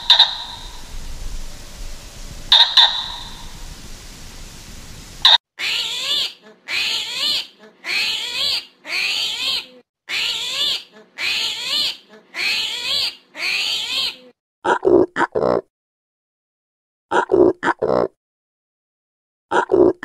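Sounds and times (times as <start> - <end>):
armadillo squealing: 0.0 - 1.0, 2.5 - 3.6, 5.2 - 14.2.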